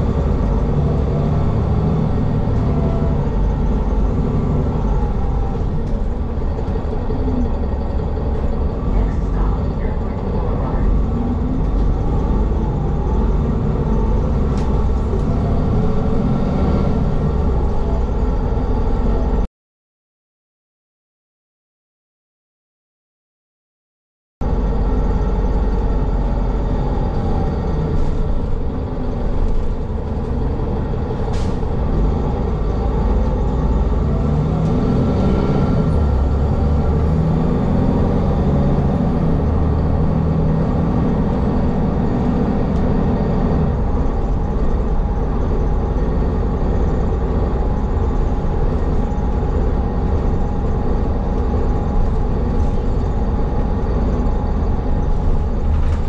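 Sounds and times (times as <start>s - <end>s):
bus engine and road rumble: 0.0s - 19.5s, 24.4s - 56.0s.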